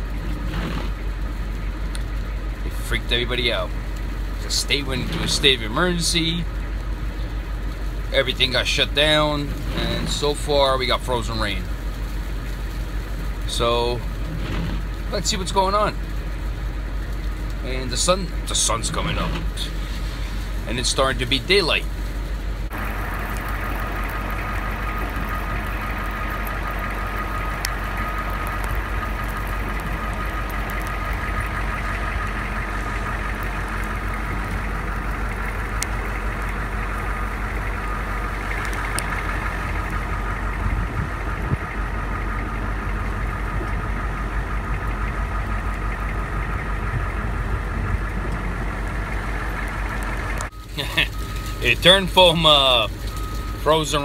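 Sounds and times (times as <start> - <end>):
truck engine idling: 0.0 - 54.0
thin steady whine: 13.0 - 54.0.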